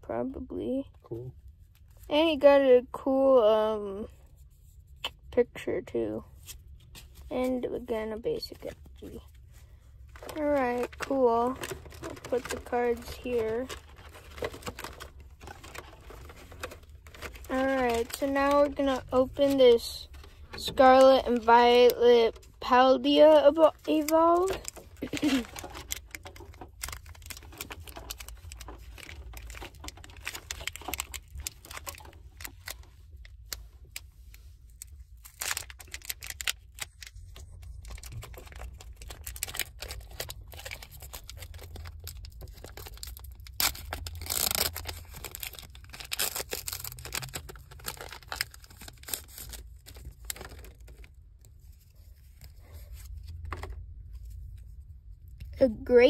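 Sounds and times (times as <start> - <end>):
foil wrapper tearing and crinkling: 10.2 - 19.8, 23.8 - 34.0, 34.8 - 51.1.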